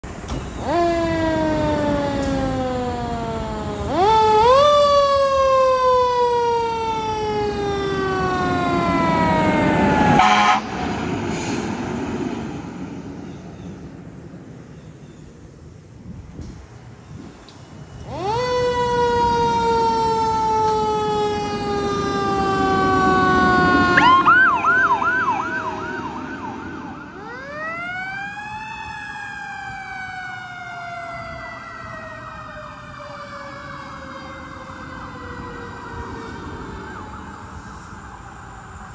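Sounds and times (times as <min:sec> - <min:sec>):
fire engine siren wailing: 0:00.0 - 0:14.6, 0:17.2 - 0:38.9
rapid yelping siren: 0:00.6 - 0:10.7, 0:17.9 - 0:38.0.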